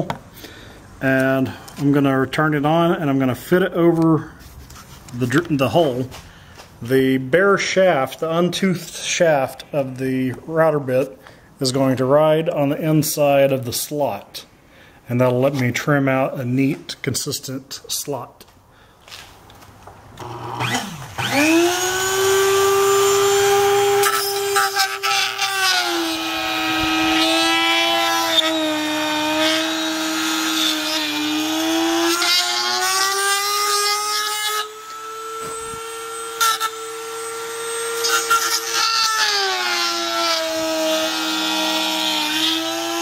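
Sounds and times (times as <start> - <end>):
rotary tool whining: 20.2 - 43.0
router bit cutting plastic: 20.2 - 43.0.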